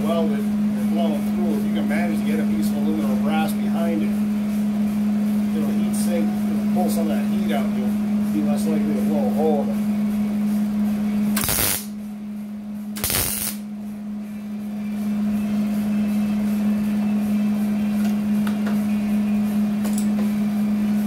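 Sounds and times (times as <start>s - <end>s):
steady low hum: 0.0s - 21.0s
welder crackling: 11.4s - 11.9s, 13.0s - 13.6s.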